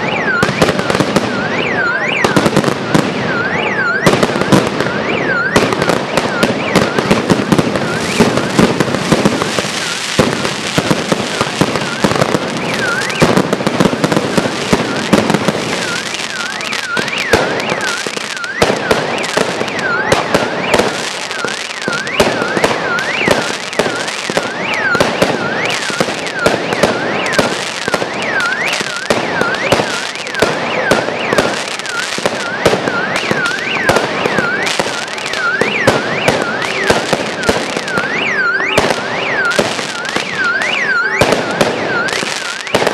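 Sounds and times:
fireworks bangs: 0.0 - 42.9
fireworks crackling and popping: 0.0 - 42.9
rising and falling whistle: 11.3 - 13.4, 14.6 - 42.9.

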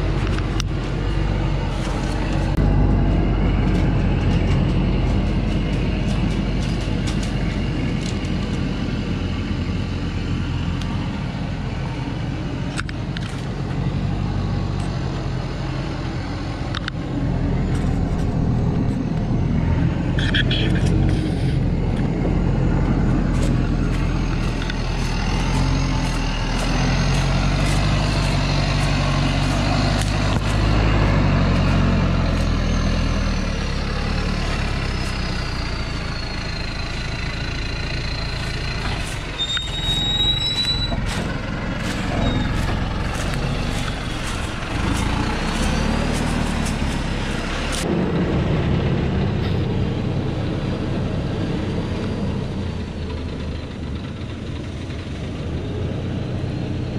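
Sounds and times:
diesel truck engine straining: 0.0 - 56.9
thin high squeals: 34.6 - 44.6.

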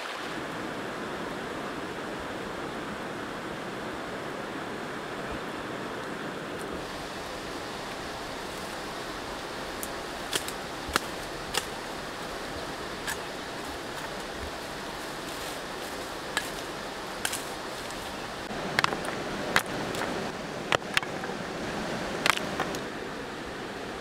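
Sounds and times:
river water rushing: 0.0 - 24.0
bamboo stems snapping: 9.8 - 11.7, 17.2 - 18.0.

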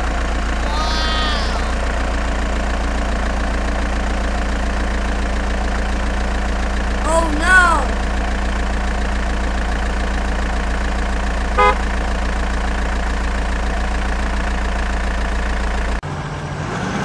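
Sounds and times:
truck engine idling: 0.0 - 16.0
different engine sound: 0.0 - 17.0
short horn beep: 11.6 - 11.8.

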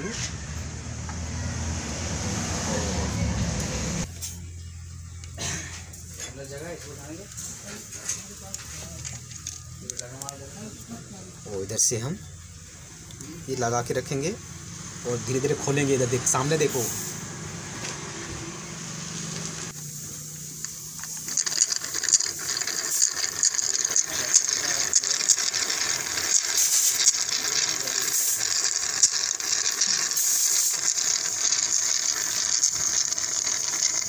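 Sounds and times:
crackling sputtering hiss of suction: 5.2 - 34.0.

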